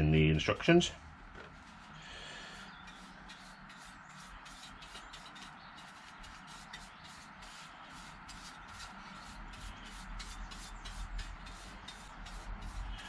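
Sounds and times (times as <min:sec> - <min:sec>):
paintbrush bristles swishing: 0:02.9 - 0:13.0.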